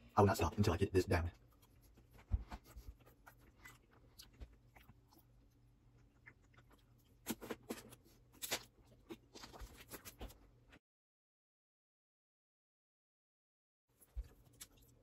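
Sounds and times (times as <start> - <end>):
person chewing: 1.4 - 10.4, 14.0 - 15.0.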